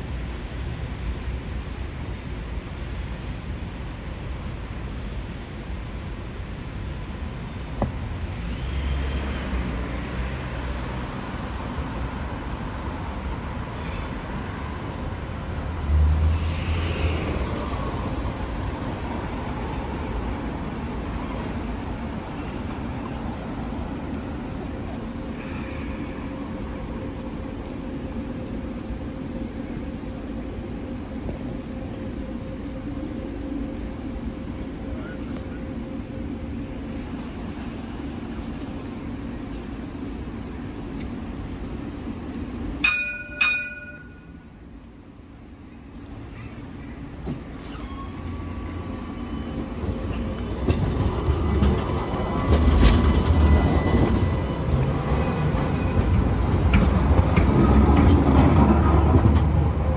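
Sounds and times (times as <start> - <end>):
street traffic noise: 0.0 - 59.9
tram humming: 0.0 - 59.9
tram bell dings: 42.8 - 44.5.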